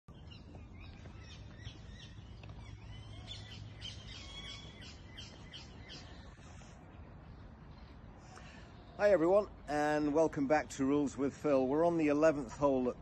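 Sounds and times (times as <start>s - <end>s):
birds chirping and singing: 0.1s - 10.0s.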